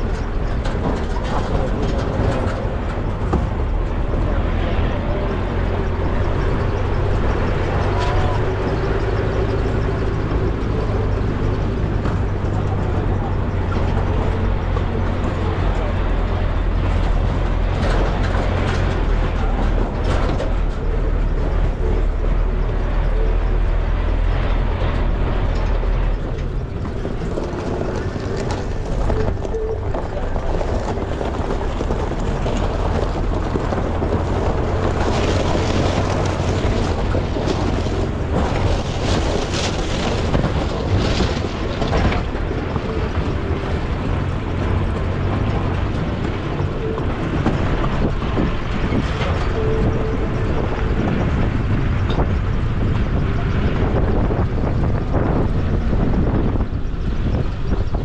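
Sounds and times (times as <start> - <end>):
car engine drone: 0.0 - 58.0
road and tyre noise: 0.0 - 58.0.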